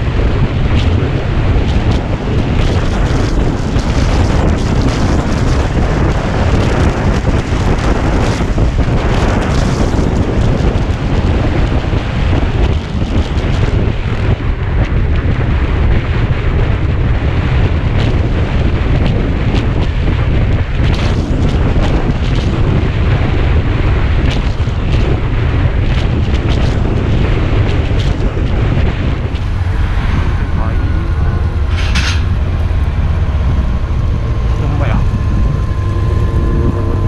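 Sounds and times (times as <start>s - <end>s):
motorcycle engine: 0.0s - 37.0s
road noise: 0.0s - 37.0s
wind buffeting microphone: 0.0s - 37.0s.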